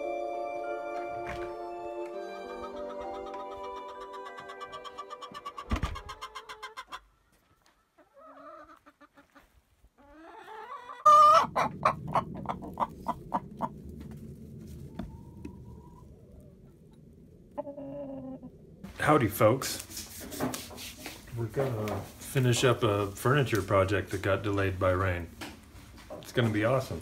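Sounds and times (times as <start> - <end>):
hen clucking: 2.4 - 13.8, 17.5 - 18.6
low rustling rumble: 11.4 - 17.6, 18.4 - 19.9.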